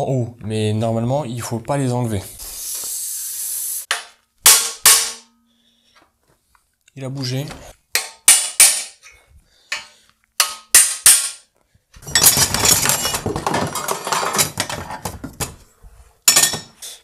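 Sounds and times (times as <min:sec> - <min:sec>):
crowbar rattling and scraping: 0:12.0 - 0:15.6.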